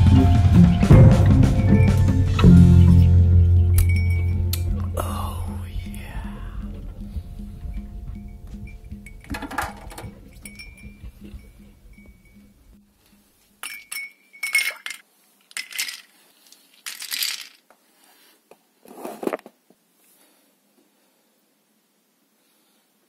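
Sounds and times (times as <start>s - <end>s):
background music: 0.0s - 12.8s
ice cubes clinking into glass: 13.6s - 16.1s, 16.8s - 17.6s.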